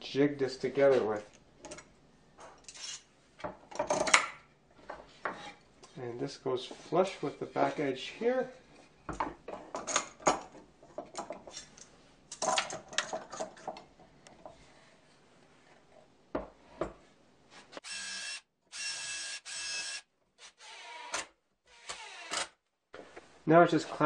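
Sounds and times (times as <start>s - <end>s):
cordless drill drilling wood: 17.8s - 22.5s.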